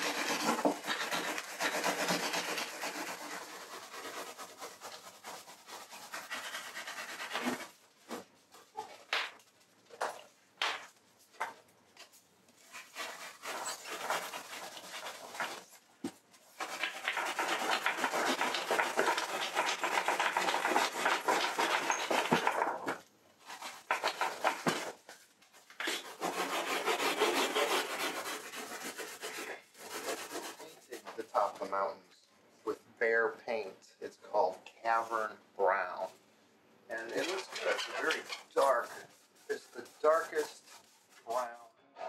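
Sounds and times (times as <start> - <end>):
hand tool scraping: 0.0 - 8.2, 12.6 - 15.6, 16.6 - 25.0, 25.7 - 31.6, 36.9 - 41.5.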